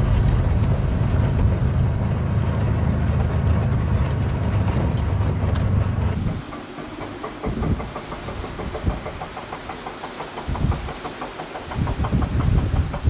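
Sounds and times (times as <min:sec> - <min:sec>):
vehicle engine droning: 0:00.0 - 0:06.5.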